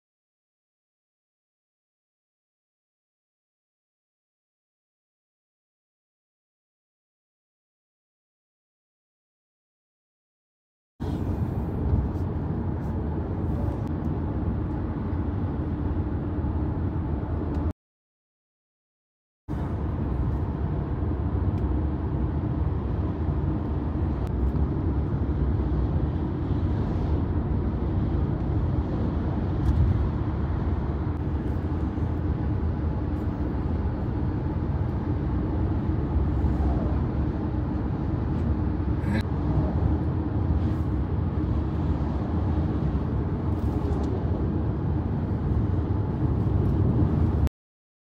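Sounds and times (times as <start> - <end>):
road and engine rumble in car: 11.0 - 17.7, 19.5 - 47.5.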